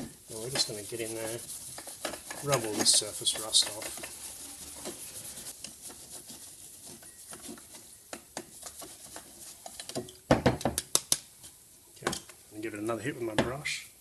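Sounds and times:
knocks and handling noise: 0.0s - 12.4s
steel wool scrubbing steel: 0.2s - 9.7s.

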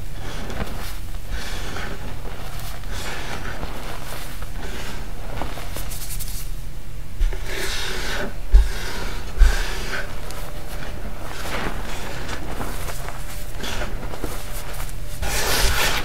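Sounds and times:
hands crunching chalk powder: 0.0s - 6.5s, 7.3s - 16.0s.

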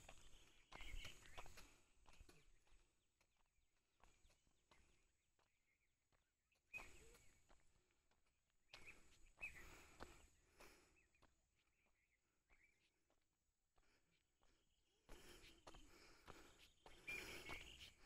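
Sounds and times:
footstep scuffs on dirt: 0.0s - 10.2s.

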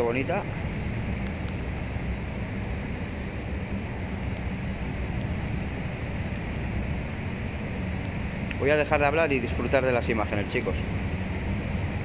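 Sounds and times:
indoor hall rumble: 0.0s - 12.0s.

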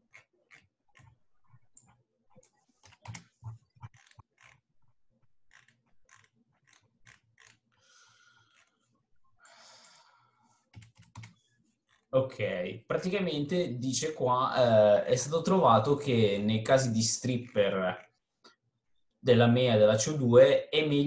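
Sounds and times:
keyboard and mouse clicking: 1.8s - 4.6s, 10.7s - 11.4s.

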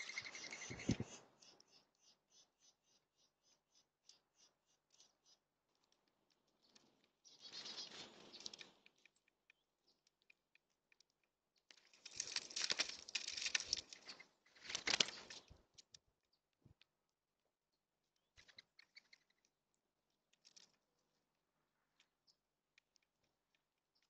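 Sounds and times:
birds pecking seed: 0.0s - 24.0s
wing flapping and scuffling: 11.7s - 15.9s.

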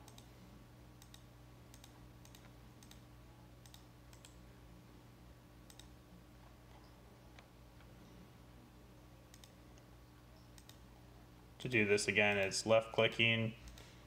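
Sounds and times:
computer mouse clicks: 0.0s - 0.3s, 1.0s - 3.0s, 3.6s - 4.4s, 5.7s - 6.0s, 9.3s - 10.8s, 13.6s - 13.9s
low electrical hum: 0.0s - 14.0s.

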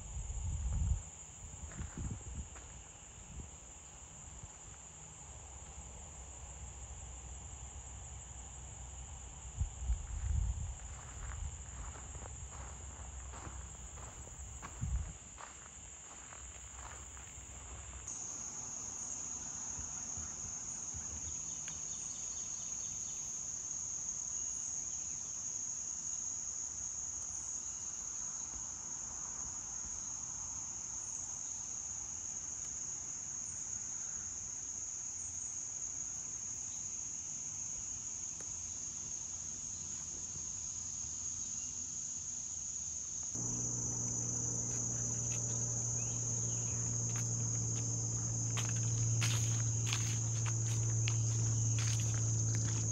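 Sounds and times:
insects droning: 0.0s - 52.9s
low steady hum: 43.4s - 52.9s.

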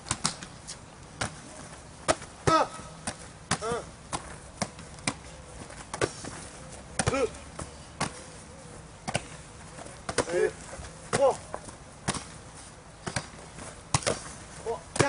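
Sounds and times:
ball slapping into hands: 0.0s - 1.4s, 11.1s - 12.4s, 13.0s - 14.3s
person shouting: 2.4s - 2.9s.

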